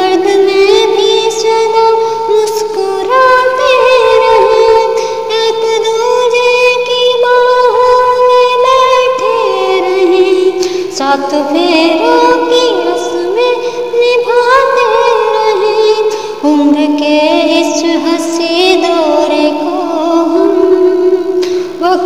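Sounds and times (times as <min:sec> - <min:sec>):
woman singing solo: 0:00.0 - 0:22.0.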